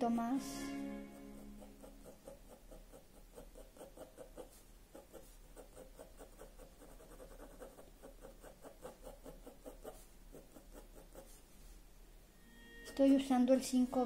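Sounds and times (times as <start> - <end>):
low mains hum: 0.0 - 14.0
pencil scratching on paper: 1.0 - 11.8.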